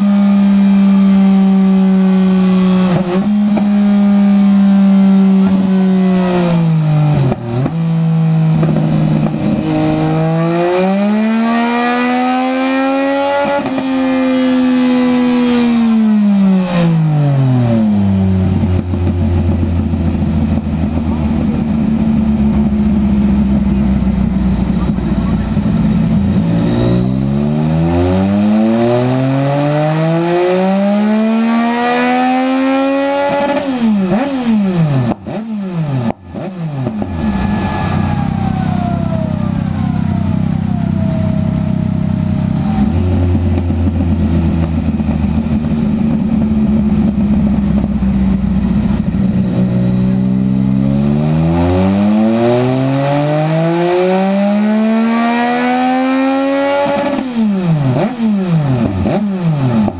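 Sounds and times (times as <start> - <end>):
motorcycle engine revving: 0.0 - 59.9
exhaust cracks: 5.2 - 11.3, 15.0 - 28.6, 33.3 - 52.3
engine idling: 17.9 - 26.8, 36.1 - 50.7
whine of wheel coasting down: 36.8 - 51.4.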